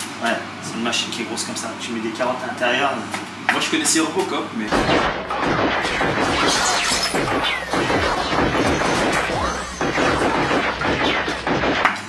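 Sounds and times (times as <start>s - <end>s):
crashing impacts: 4.7s - 12.0s
glass shattering: 4.8s - 11.8s.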